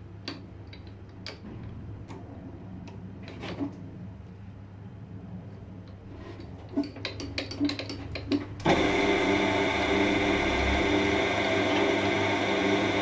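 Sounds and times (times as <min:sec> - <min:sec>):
machine motor running: 0:08.6 - 0:13.0.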